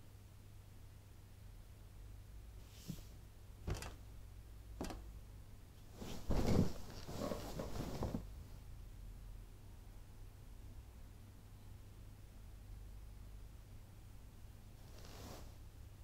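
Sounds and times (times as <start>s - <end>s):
bedding rustling: 5.9s - 8.4s, 14.8s - 15.6s.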